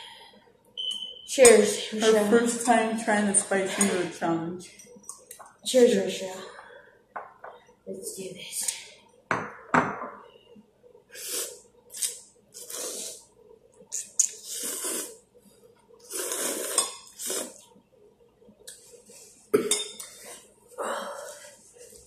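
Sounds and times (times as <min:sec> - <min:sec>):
people slurping noodles: 0:11.2 - 0:13.3, 0:13.9 - 0:15.2, 0:16.0 - 0:17.7.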